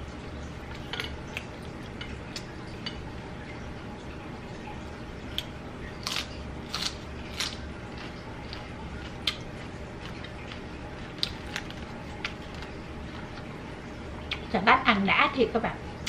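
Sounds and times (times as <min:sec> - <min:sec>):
steady low hum: 0:00.0 - 0:16.0
person chewing crispy chicken: 0:06.0 - 0:13.4.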